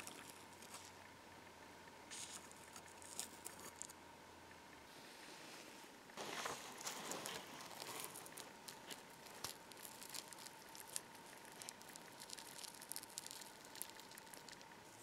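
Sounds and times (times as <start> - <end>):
sticky crackles and clicks: 2.1 - 4.0, 6.3 - 15.0.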